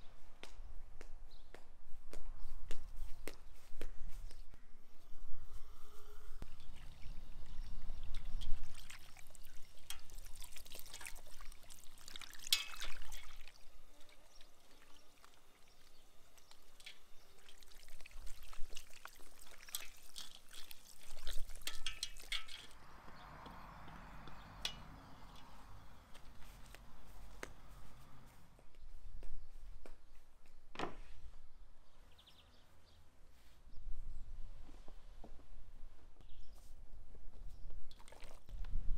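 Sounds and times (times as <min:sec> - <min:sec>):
running water rushing: 0:06.5 - 0:22.8
water splashing into metal bowl: 0:06.6 - 0:22.8.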